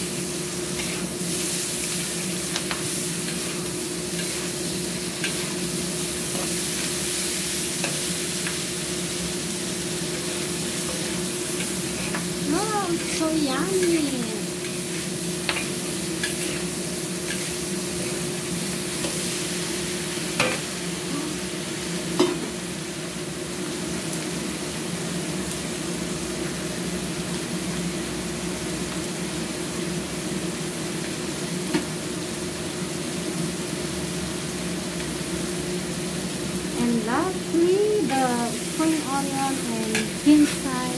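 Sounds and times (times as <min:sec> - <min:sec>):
food sizzling in a wok: 0:00.0 - 0:40.9
metal spatula scraping a wok: 0:15.5 - 0:18.3.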